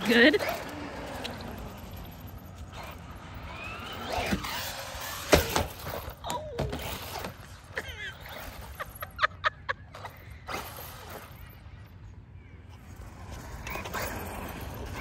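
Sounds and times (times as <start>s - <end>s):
electric motor whining: 0.0s - 7.4s.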